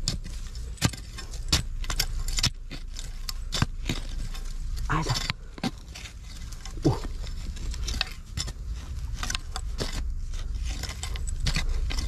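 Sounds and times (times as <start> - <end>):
loose earth rattling down: 0.0 - 12.0
metal blade scraping soil: 0.0 - 12.0.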